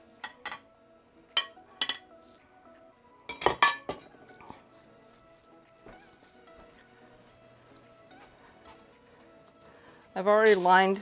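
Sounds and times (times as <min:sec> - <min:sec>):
faint background music: 0:00.0 - 0:11.0
metal pots clanking: 0:00.2 - 0:00.7, 0:01.4 - 0:02.1, 0:03.3 - 0:04.6.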